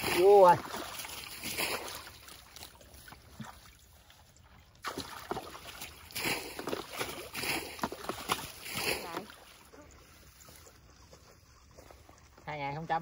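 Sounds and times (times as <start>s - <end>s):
people wading in muddy water: 0.0s - 13.0s.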